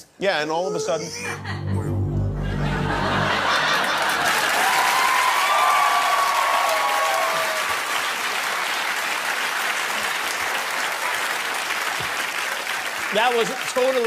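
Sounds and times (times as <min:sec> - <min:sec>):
audience applauding: 0:02.8 - 0:14.0.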